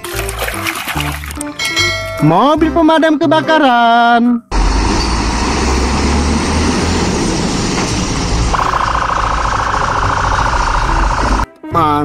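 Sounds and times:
fire engine diesel rumble: 4.5s - 11.5s
harsh steady warning tone: 8.2s - 11.5s.

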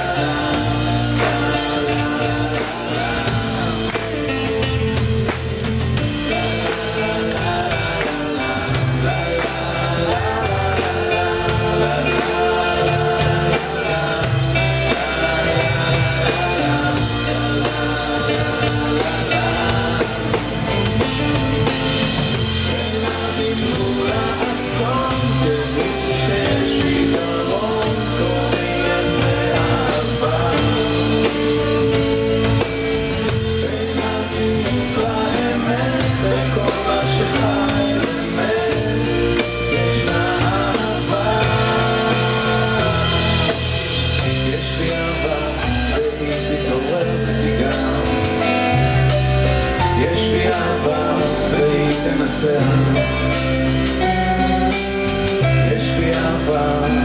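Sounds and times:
drum kit beat: 0.0s - 57.0s
live band playing: 0.0s - 57.0s
person singing: 0.0s - 57.0s.

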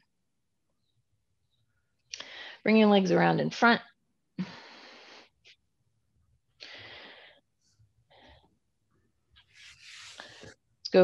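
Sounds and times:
person breathing: 2.2s - 2.7s, 4.4s - 5.4s, 6.6s - 7.5s, 8.1s - 8.5s
shifting on yoga mat: 9.5s - 10.6s.

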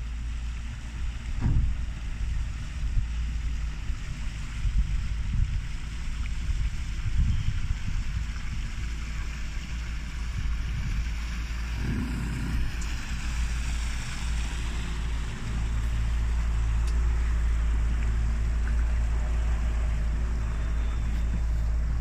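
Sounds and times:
motorboat engine running: 0.0s - 22.0s
rushing water: 0.0s - 22.0s
wind noise: 4.5s - 9.2s.

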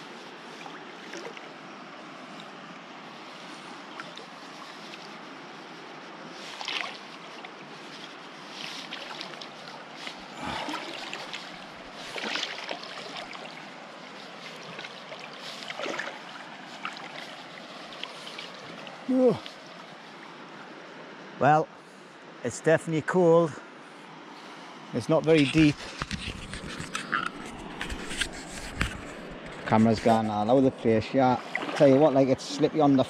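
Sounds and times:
splashes from person wading: 0.0s - 20.5s, 31.3s - 32.9s
river running over rocks: 0.0s - 21.4s.

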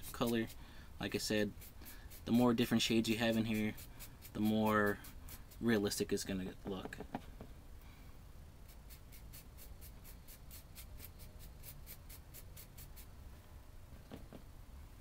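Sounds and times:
paintbrush scratchy strokes: 0.0s - 6.0s, 8.6s - 13.2s.

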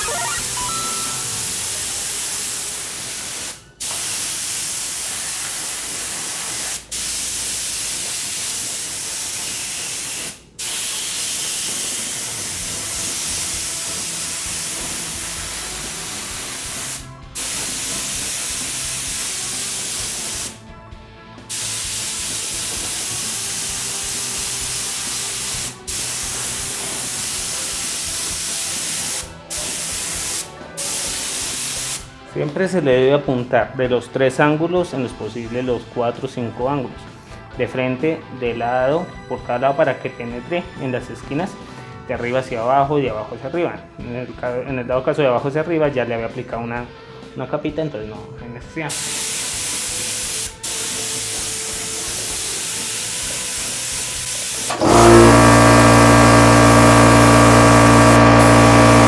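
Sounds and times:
spray gun hissing: 16.0s - 20.5s, 21.5s - 32.0s, 48.9s - 59.0s.

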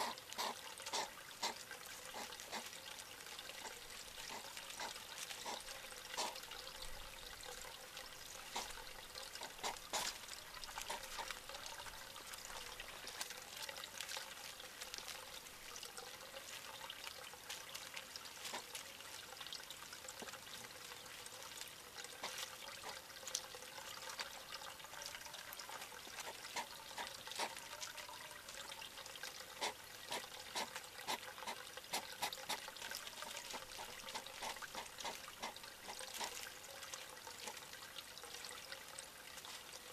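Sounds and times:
hedgehog crunching food: 0.0s - 2.9s, 3.5s - 7.6s, 8.5s - 15.4s, 18.3s - 18.9s
water trickling: 0.0s - 39.9s.

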